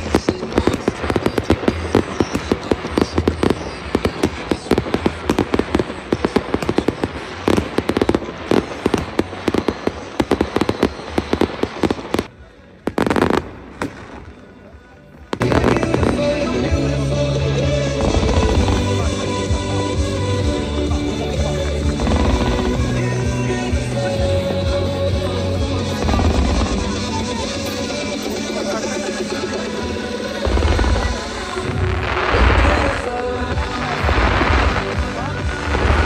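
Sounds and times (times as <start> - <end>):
fireworks bursting and crackling: 0.0 - 36.0.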